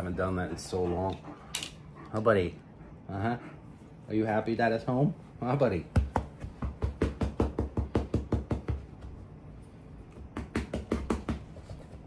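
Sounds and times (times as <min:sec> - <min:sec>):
rapid thumping knocks: 0:05.9 - 0:09.2.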